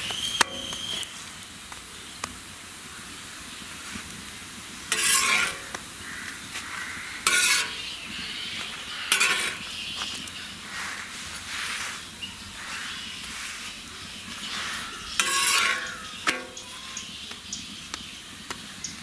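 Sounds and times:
bread sizzling in oil: 0:00.0 - 0:19.0
metal spatula scraping griddle: 0:04.9 - 0:05.8, 0:06.5 - 0:17.0.

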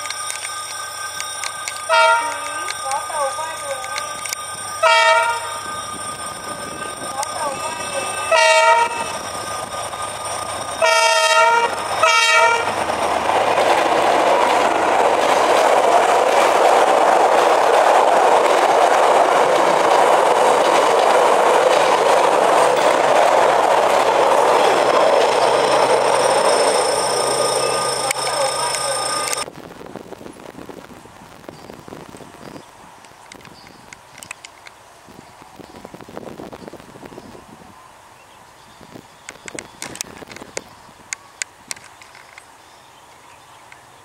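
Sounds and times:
train wheels on rails: 0:00.0 - 0:37.4, 0:38.9 - 0:42.6
locomotive horn blasts: 0:01.9 - 0:02.5, 0:04.8 - 0:05.5, 0:08.2 - 0:09.1, 0:10.8 - 0:12.7.

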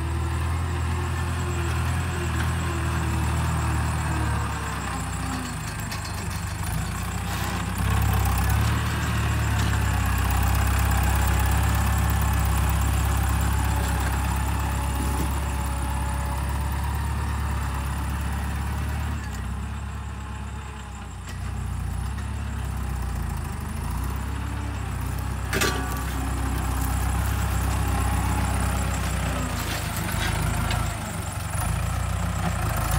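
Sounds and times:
tractor diesel engine under load: 0:00.0 - 0:32.9.

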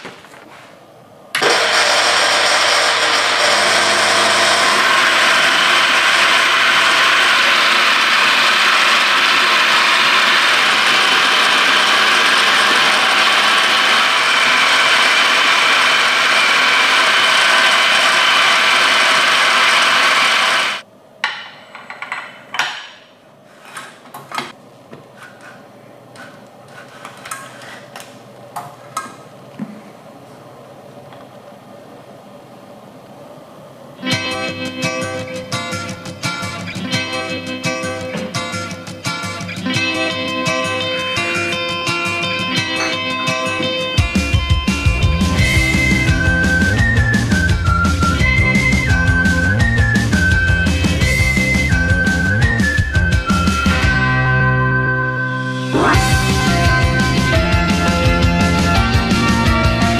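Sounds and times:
electric coffee grinder motor: 0:01.4 - 0:20.8.

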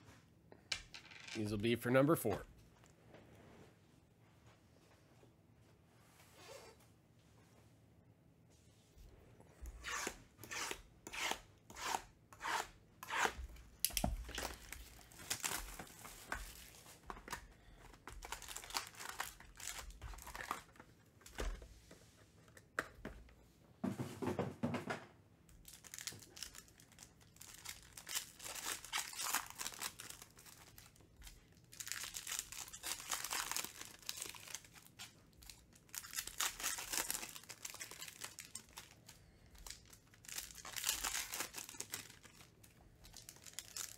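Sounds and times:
packs being torn open: 0:13.8 - 0:20.8, 0:25.6 - 0:43.9
foil wrappers crinkling: 0:14.2 - 0:20.8, 0:25.6 - 0:43.9.

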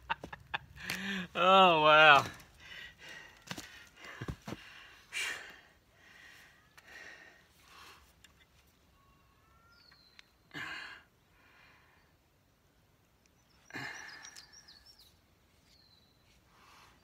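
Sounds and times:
faint high bird chirps: 0:08.6 - 0:10.5, 0:13.2 - 0:16.4.

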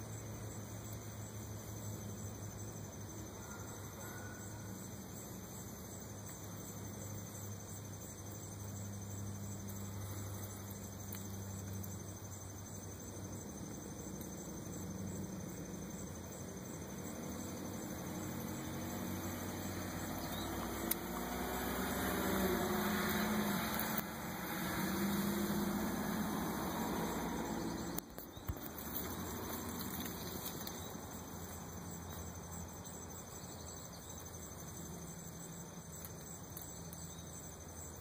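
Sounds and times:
outdoor background noise: 0:00.0 - 0:38.0
distant motor hum: 0:16.5 - 0:32.6.

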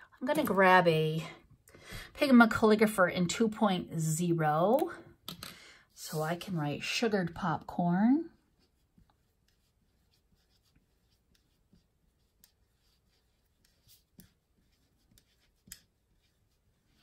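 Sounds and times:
pen scratching on paper: 0:08.5 - 0:17.0.

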